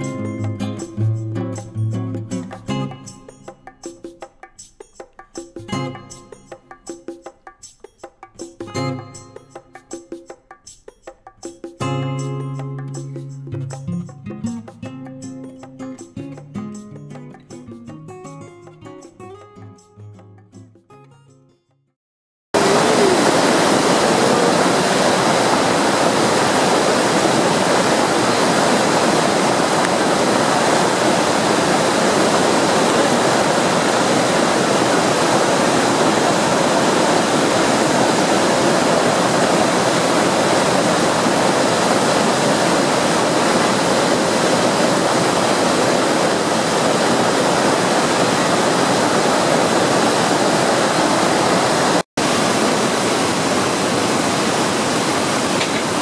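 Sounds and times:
waterfall rushing: 22.6 - 56.0.

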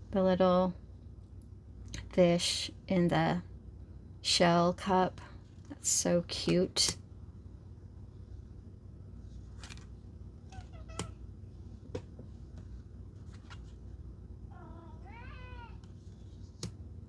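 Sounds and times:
cat meowing: 10.5 - 11.2, 14.5 - 15.8.

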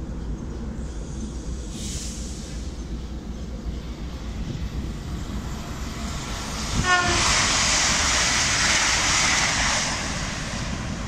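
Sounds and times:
train rushing past: 0.0 - 11.0
train horn toot: 6.8 - 7.5.

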